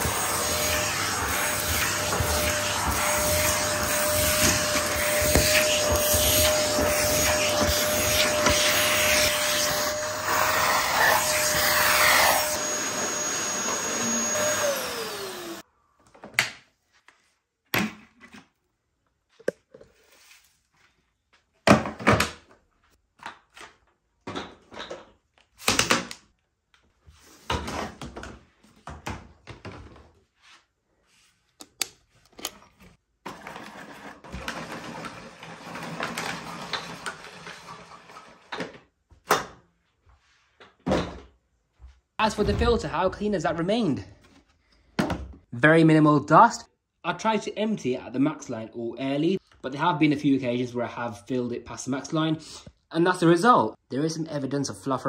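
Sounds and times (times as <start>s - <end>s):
vacuum cleaner being handled: 0.0s - 10.1s
vacuum cleaner motor whine: 0.0s - 15.6s, 33.5s - 37.4s.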